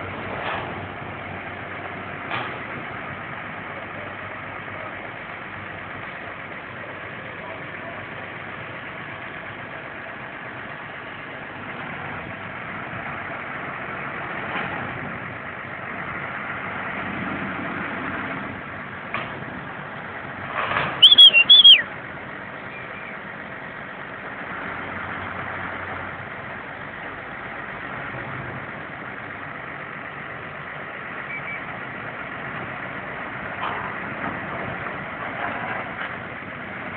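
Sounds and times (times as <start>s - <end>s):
truck engine running: 0.0s - 36.9s
sharp high-pitched squeals: 21.0s - 21.8s.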